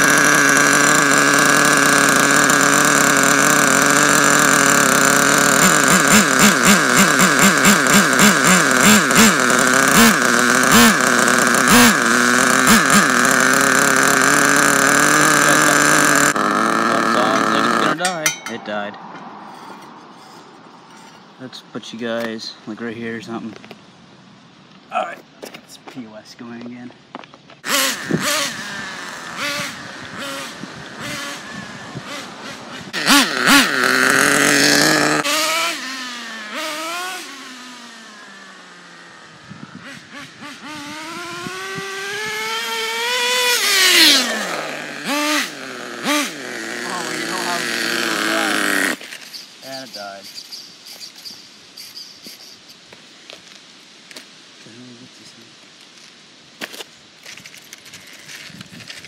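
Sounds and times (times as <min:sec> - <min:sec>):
rc truck nitro engine revving: 0:00.0 - 0:18.0, 0:27.6 - 0:52.6.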